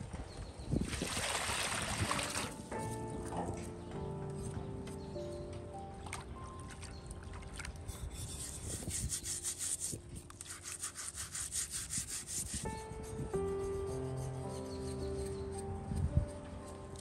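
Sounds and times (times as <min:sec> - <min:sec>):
background music: 0:01.4 - 0:17.0
metal scouring pad scrubbing: 0:07.9 - 0:12.7.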